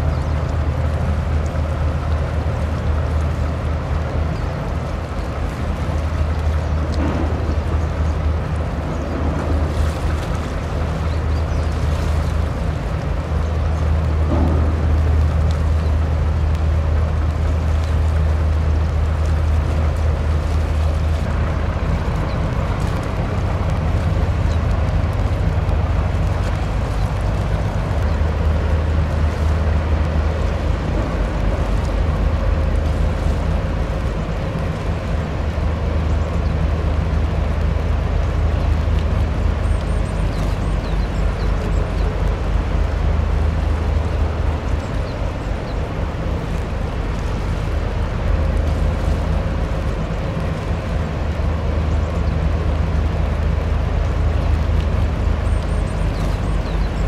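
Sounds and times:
ship engines droning: 0.0 - 57.0.

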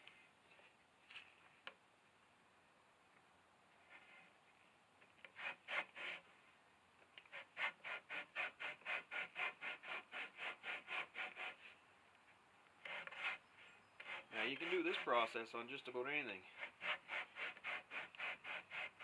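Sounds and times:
hide rasping over wood: 5.2 - 6.2, 7.3 - 11.7, 12.8 - 13.4, 14.0 - 15.3, 16.5 - 19.0.

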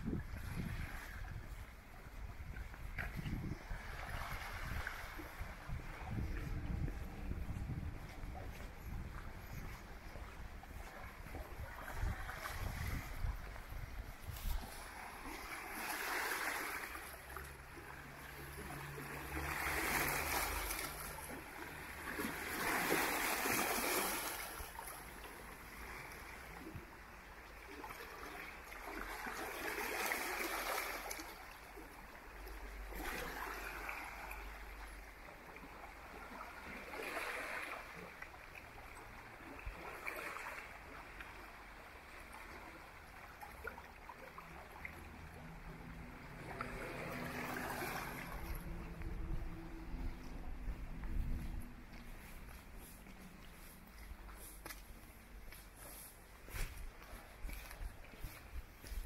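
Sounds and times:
sea waves washing onto beach: 0.2 - 27.0, 44.4 - 54.7.

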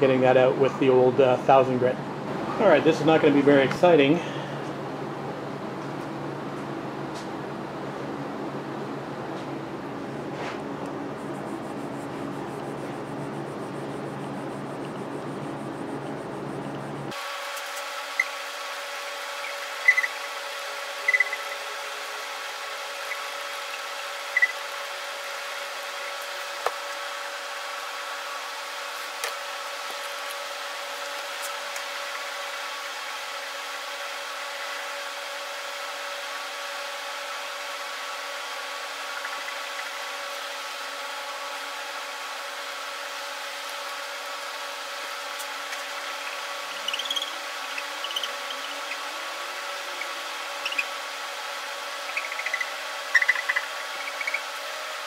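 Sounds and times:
steady hum: 0.0 - 55.0
wet sandpaper rubbing: 10.4 - 15.7.

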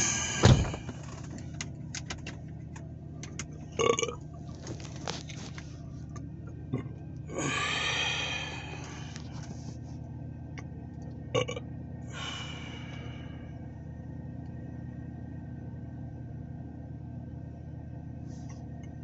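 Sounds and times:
car door thumping shut: 0.0 - 1.3
low hum inside car: 0.0 - 19.0
person vocal sound: 7.3 - 8.8.

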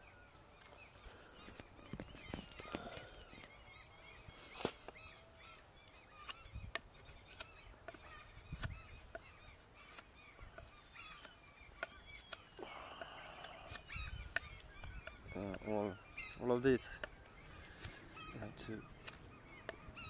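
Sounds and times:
birds calling: 0.0 - 20.0
knife shaving wood clicks: 6.2 - 8.0, 19.0 - 19.8.

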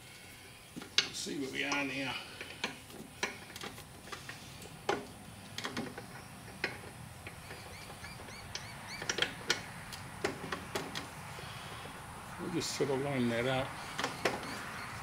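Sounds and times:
small bird chirping: 7.4 - 9.4, 13.7 - 15.0.

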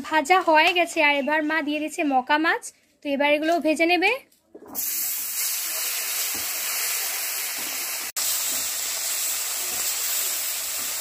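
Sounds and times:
fish sizzling in hot oil: 4.8 - 11.0.

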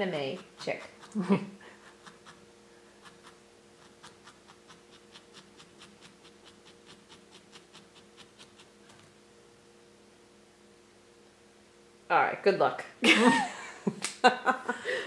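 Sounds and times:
felting needle poking wool: 3.0 - 9.2.

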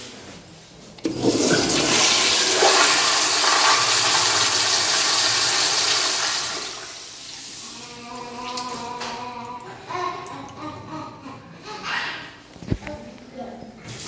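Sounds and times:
toilet flushing: 1.0 - 8.7.

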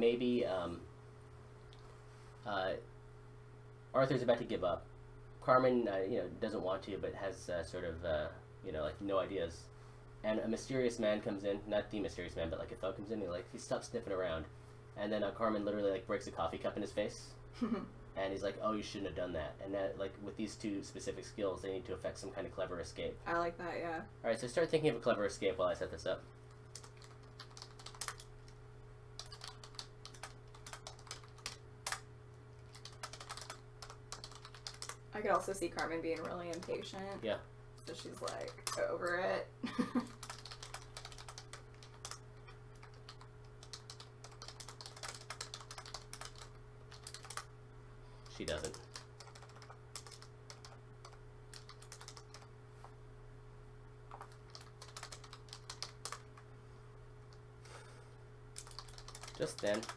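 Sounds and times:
faint steady hum: 0.0 - 59.9
keyboard typing: 26.7 - 28.6, 29.2 - 32.0, 32.6 - 35.0, 36.1 - 36.9, 40.1 - 42.2, 42.8 - 47.5, 48.4 - 52.5, 54.1 - 56.4, 58.6 - 59.9.

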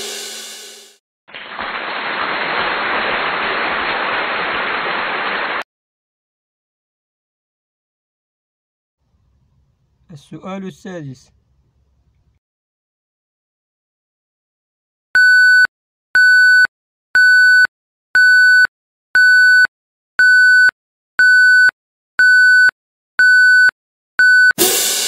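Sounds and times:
cymbal crash: 0.0 - 1.0, 24.6 - 25.0.

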